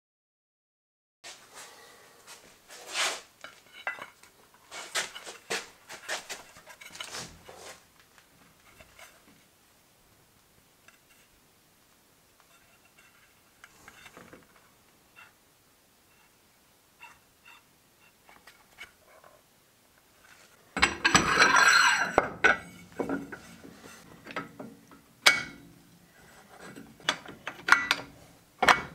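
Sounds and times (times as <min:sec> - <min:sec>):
faint rubbing: 0:01.3 - 0:03.3, 0:04.7 - 0:07.9, 0:21.7 - 0:24.2
metallic clinks and knocks: 0:27.0 - 0:28.9.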